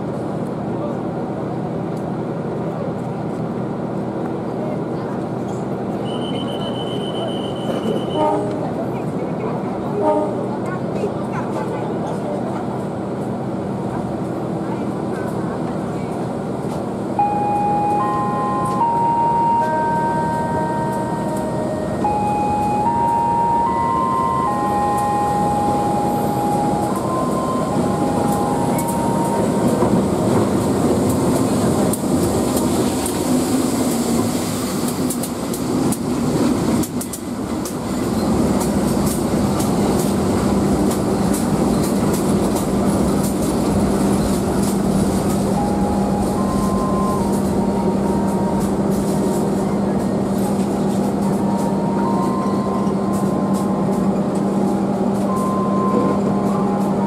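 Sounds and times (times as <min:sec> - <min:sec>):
passenger train rolling past: 0:00.0 - 0:57.0.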